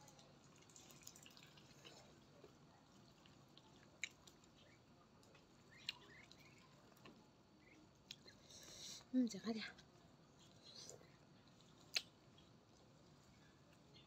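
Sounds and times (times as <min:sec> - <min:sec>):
person chewing with mouth clicks: 0:03.2 - 0:07.2, 0:11.8 - 0:12.2.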